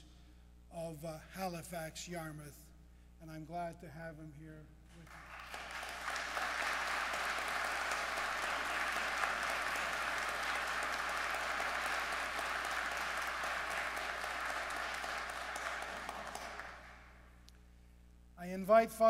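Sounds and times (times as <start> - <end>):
crowd applauding: 5.0 - 17.2.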